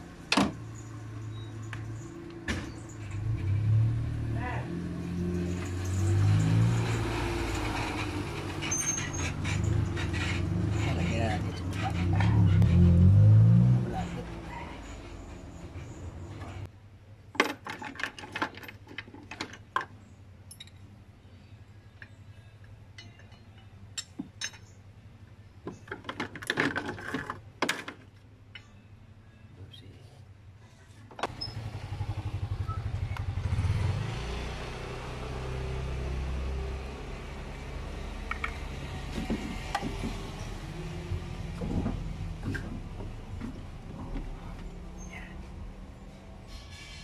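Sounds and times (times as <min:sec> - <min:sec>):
metal tools clinking and rattling: 0:05.4 - 0:12.4, 0:17.4 - 0:20.9, 0:22.9 - 0:24.8.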